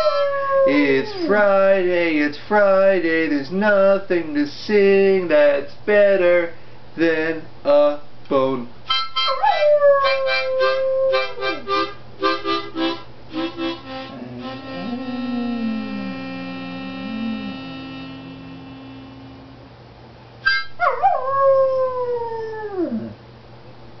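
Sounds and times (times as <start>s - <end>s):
dog howling: 0.0s - 1.5s, 9.3s - 11.5s, 14.1s - 17.9s, 20.8s - 23.2s
rhythmic music chords: 11.4s - 19.4s.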